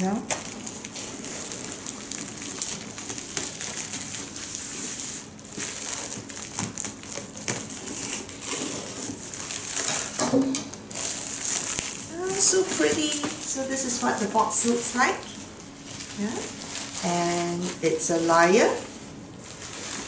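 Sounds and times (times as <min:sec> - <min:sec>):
bubble wrap crinkling: 0:00.0 - 0:20.0.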